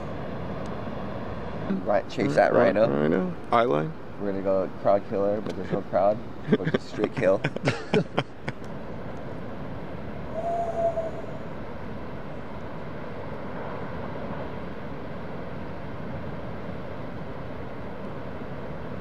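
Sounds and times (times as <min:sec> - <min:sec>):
ocean surf breaking: 0:08.5 - 0:18.5
brief held tone: 0:10.3 - 0:11.5.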